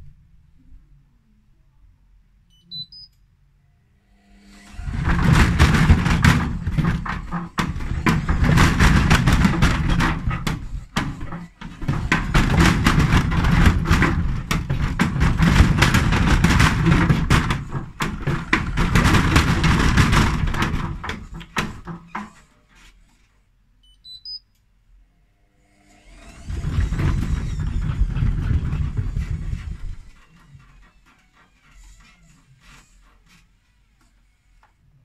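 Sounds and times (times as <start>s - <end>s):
high beeps: 2.5s - 3.2s, 23.8s - 24.5s
washing machine rattling and banging: 4.8s - 22.9s, 26.1s - 33.5s.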